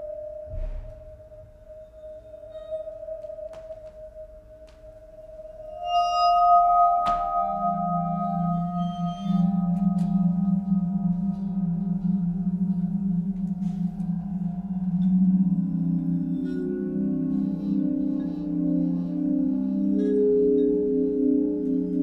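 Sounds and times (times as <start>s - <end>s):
low pulsing held tone: 5.1s - 22.0s
ringing bell-like tones: 5.1s - 22.0s.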